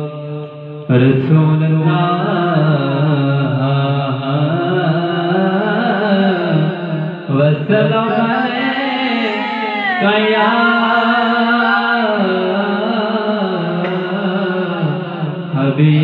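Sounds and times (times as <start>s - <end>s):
man singing devotional song: 0.0s - 16.0s.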